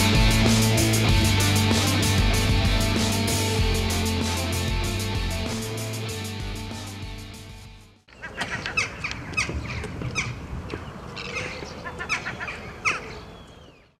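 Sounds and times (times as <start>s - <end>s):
outro music: 0.0s - 8.0s
gulls calling: 8.1s - 13.9s.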